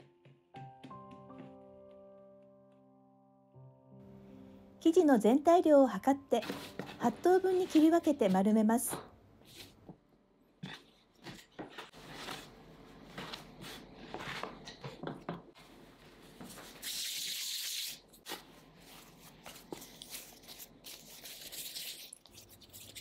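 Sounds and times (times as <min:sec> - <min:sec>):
hands rubbing dough: 0:18.2 - 0:23.0.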